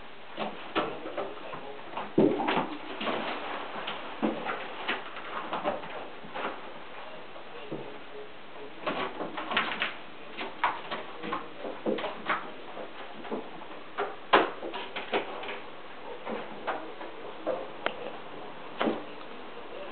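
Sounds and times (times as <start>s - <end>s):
kittens' paws thumping on wood: 0.4s - 6.8s, 8.8s - 18.2s.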